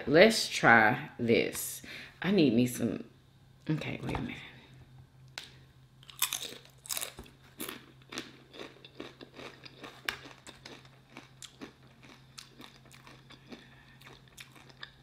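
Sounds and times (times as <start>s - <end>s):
faint low hum: 0.0s - 15.0s
tortilla chip crunching: 6.0s - 15.0s.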